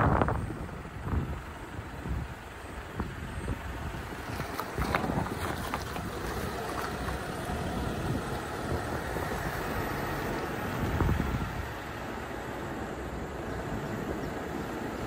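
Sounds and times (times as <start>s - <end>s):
wind buffeting microphone: 0.0s - 12.6s
road and wind noise: 0.0s - 15.0s.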